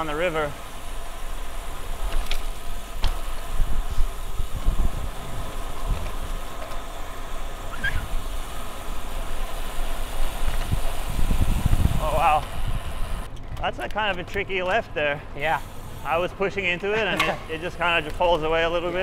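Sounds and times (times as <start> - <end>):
tyre and road noise: 0.0 - 19.0
wind buffeting microphone: 1.1 - 13.6.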